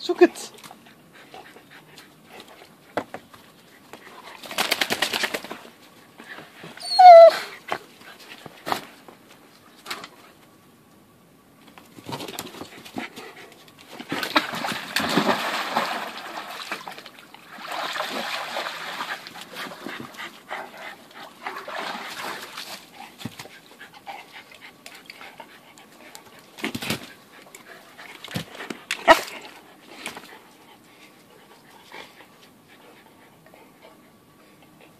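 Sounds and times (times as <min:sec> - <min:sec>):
dog panting: 0:00.6 - 0:04.7, 0:19.4 - 0:34.9
dog splashing in water: 0:14.1 - 0:19.8, 0:21.5 - 0:22.7.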